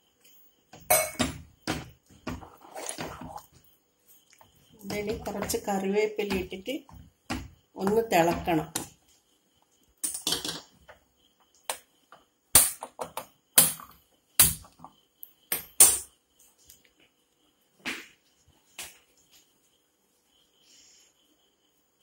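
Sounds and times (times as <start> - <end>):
sharp knocks and clicks: 6.2 - 9.0.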